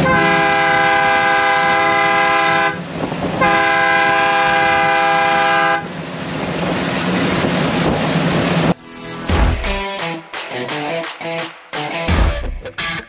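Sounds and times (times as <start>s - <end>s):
multi-tone horn blasts: 0.0s - 2.8s, 3.4s - 5.9s.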